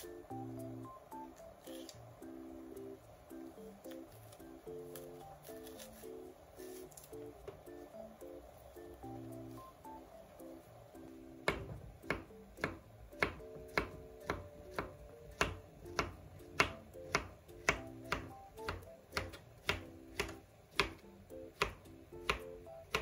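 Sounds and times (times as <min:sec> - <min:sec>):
soft background music: 0:00.0 - 0:23.0
knife tapping cutting board: 0:11.4 - 0:23.0.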